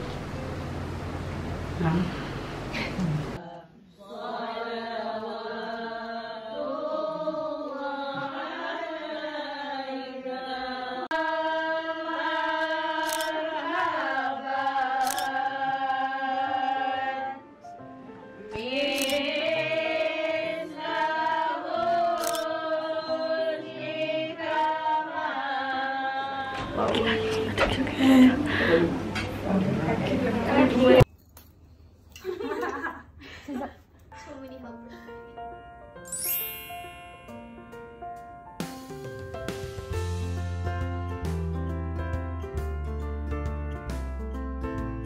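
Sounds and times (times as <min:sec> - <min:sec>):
voices singing slow chant: 0:01.8 - 0:17.7, 0:18.4 - 0:29.1.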